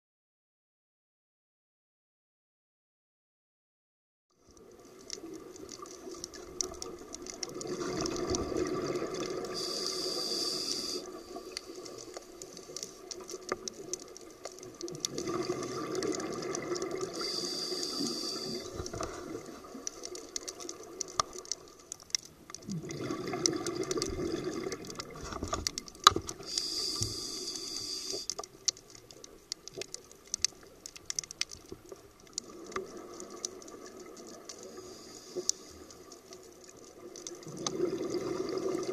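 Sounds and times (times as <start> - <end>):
crackles and clicks: 4.3 - 38.9
exhaled bubbles underwater: 4.5 - 21.7, 22.5 - 30.8, 31.7 - 35.1, 35.7 - 38.9
regulator hiss: 9.4 - 11.5, 17.1 - 18.9, 26.4 - 28.4.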